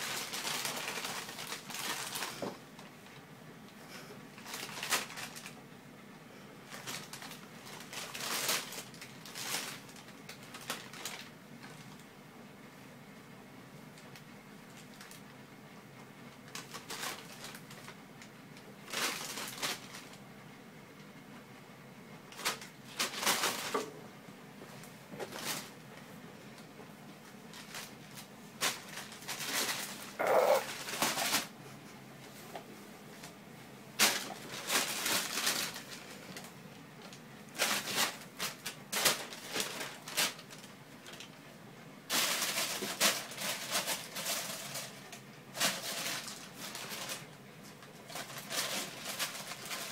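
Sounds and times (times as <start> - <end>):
plastic bag crinkling: 0.0 - 2.9, 4.4 - 5.6, 6.7 - 12.0, 16.5 - 18.0, 18.8 - 20.2, 22.3 - 23.8, 25.2 - 25.8, 27.4 - 31.6, 34.0 - 41.3, 42.1 - 49.9
kitten crying: 30.2 - 30.7.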